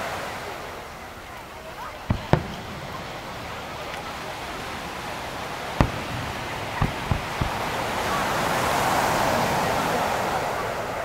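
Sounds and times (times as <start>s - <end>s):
firework hiss: 1.9s - 9.6s
firework launch thumps: 2.0s - 8.6s.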